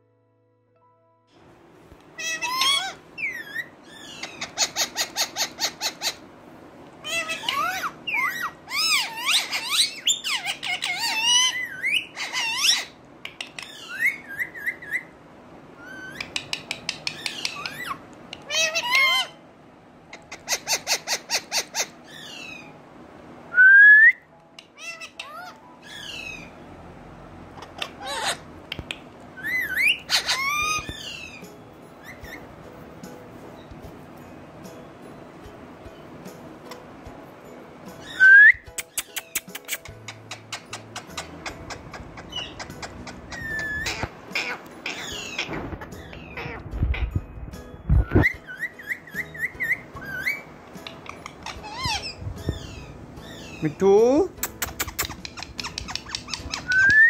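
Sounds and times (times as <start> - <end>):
parakeet whistles: 2.2 - 6.2, 7.0 - 13.0, 13.6 - 15.1, 15.8 - 16.5, 29.4 - 32.5, 38.0 - 47.2, 47.9 - 50.5, 51.1 - 53.6, 54.5 - 57.0
parakeet chattering: 2.2 - 6.3, 7.0 - 15.1, 15.8 - 19.4, 20.1 - 22.8, 24.6 - 26.5, 27.5 - 32.5, 38.0 - 47.4, 48.2 - 57.0.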